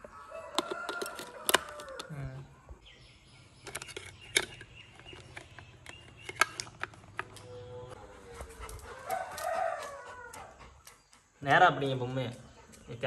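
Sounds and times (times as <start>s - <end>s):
plastic toy clicks and knocks: 0.5s - 2.1s, 3.6s - 7.5s.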